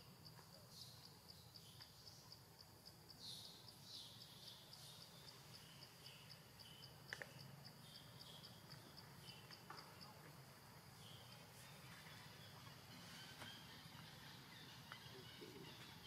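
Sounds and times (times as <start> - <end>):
insect ticking: 0.0 - 10.3.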